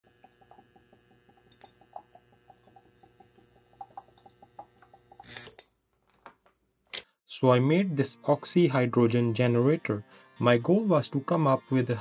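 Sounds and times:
gas bubbles popping: 0.0 - 5.3.

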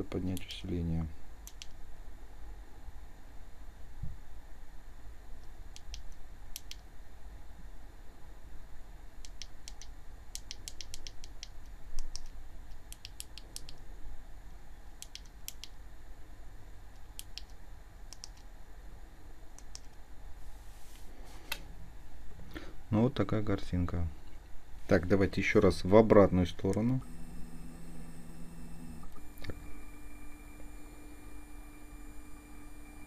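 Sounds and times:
faint low hum: 0.0 - 33.0
small buttons clicking: 1.5 - 1.8, 9.2 - 13.8, 15.0 - 15.8, 17.0 - 18.5.

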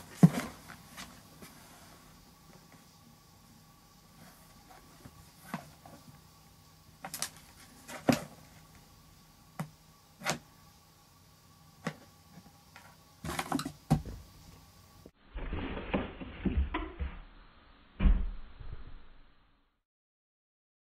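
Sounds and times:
faint steady hum: 0.0 - 15.2.

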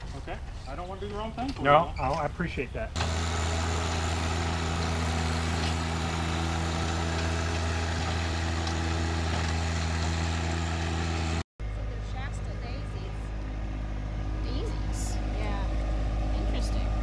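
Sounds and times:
rotary tiller in soil: 3.0 - 11.4
tractor diesel engine under load: 3.0 - 17.0.

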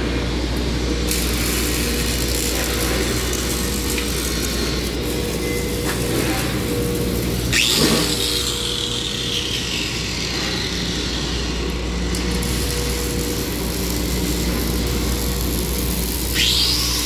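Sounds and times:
welding machines humming: 0.0 - 17.0
welding arc crackling: 0.5 - 17.0
power tool winding down: 7.4 - 17.0.

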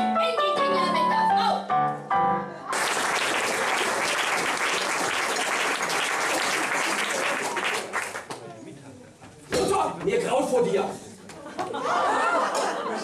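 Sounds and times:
piano-accompanied song: 0.0 - 2.7
audience applause: 2.7 - 8.5.

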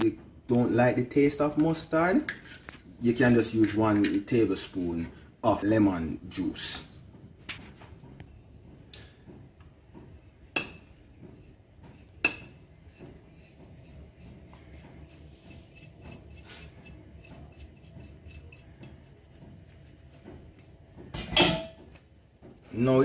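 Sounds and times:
spices scraped off ceramic plate: 12.9 - 20.2.

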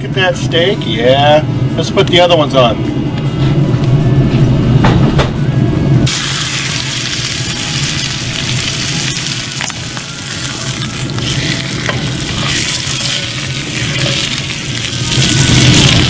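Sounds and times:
steak sizzling in a hot pan: 6.1 - 16.0.

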